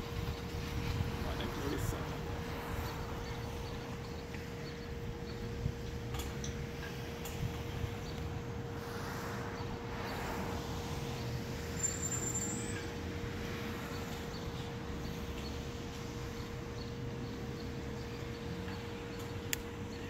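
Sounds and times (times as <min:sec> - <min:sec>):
low traffic rumble: 0:00.0 - 0:20.0
steady faint hum: 0:00.0 - 0:20.0
vehicle passing: 0:07.0 - 0:18.1.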